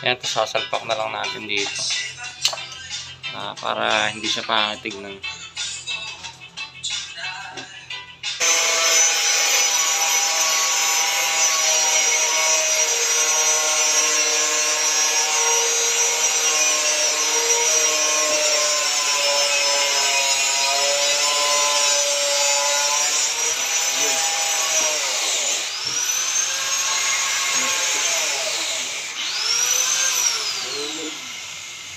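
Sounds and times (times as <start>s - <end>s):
angle grinder cutting plastic: 8.4s - 31.9s.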